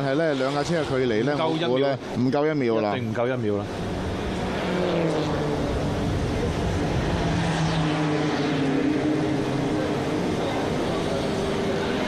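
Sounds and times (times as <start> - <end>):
race car engines: 0.0 - 12.0
track noise: 3.3 - 12.0.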